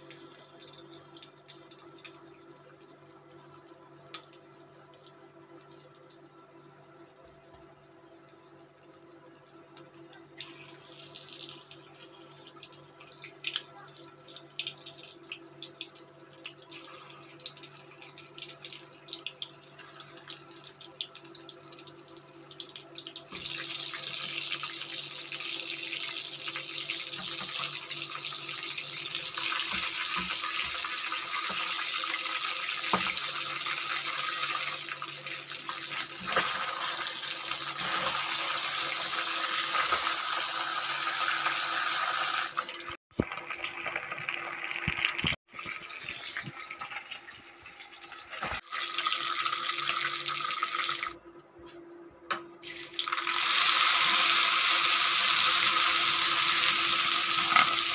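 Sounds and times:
fish deep-frying sizzling: 0:16.7 - 0:51.0, 0:52.6 - 0:57.9
hot oil crackling and spitting: 0:52.6 - 0:57.9.

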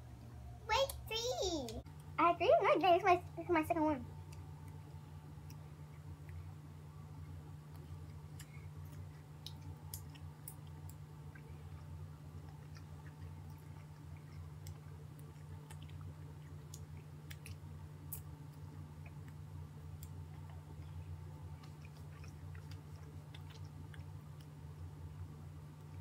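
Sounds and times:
steady low hum: 0:00.0 - 0:26.0
chewing candy wet clicks: 0:07.2 - 0:26.0.

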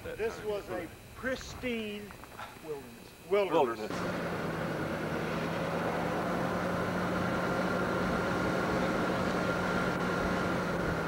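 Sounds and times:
car engine hum: 0:03.9 - 0:11.0.

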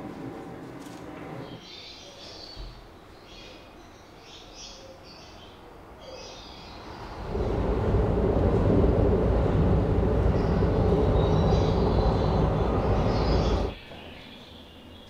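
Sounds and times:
train rumbling past: 0:00.0 - 0:01.7, 0:06.4 - 0:13.8.

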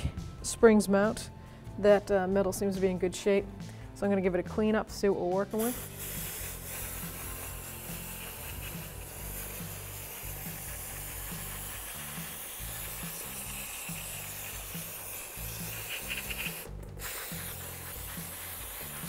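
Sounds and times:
background music with bass: 0:00.0 - 0:19.0
aerosol spray hissing: 0:05.6 - 0:19.0.

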